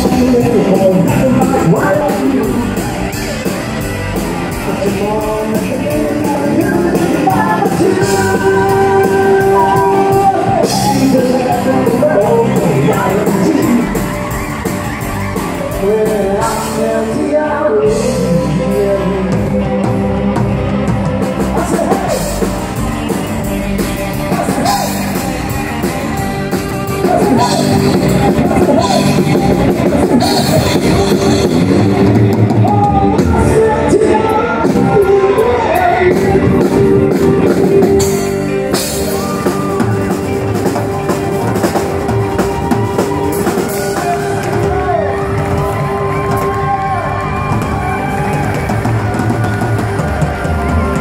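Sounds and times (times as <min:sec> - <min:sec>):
man singing into microphone: 0:00.0 - 0:02.9, 0:04.6 - 0:14.0, 0:15.8 - 0:22.4, 0:32.6 - 0:37.6
steady drum beat: 0:00.0 - 0:17.0, 0:17.9 - 0:51.0
country band playing: 0:00.0 - 0:51.0.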